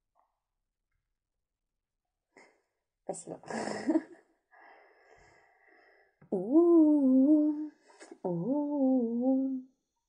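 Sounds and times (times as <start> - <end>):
girl humming: 6.3 - 9.7.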